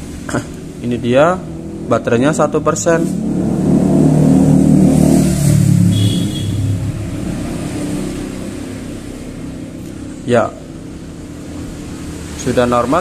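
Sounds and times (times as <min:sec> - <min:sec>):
vehicle engine passing: 0:00.0 - 0:13.0.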